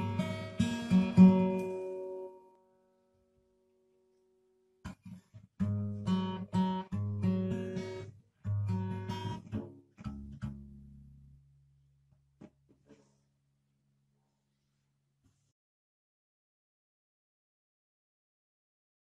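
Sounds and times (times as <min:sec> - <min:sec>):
acoustic guitar strumming chords: 0:00.0 - 0:02.6.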